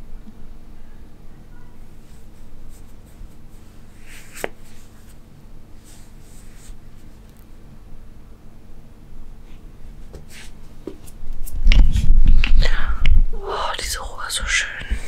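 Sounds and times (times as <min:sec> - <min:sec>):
hand stroking cat fur: 0:02.0 - 0:05.2, 0:05.8 - 0:07.2.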